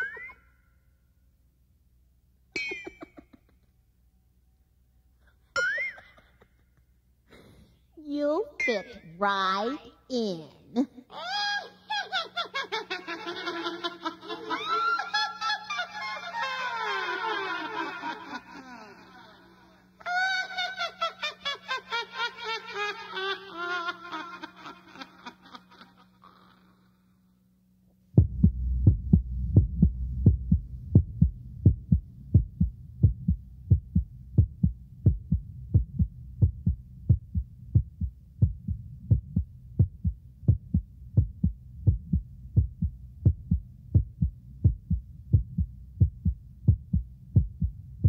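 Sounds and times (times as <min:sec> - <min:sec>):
low hum: 0:27.1 - 0:48.0
thumping heartbeat: 0:28.2 - 0:48.0.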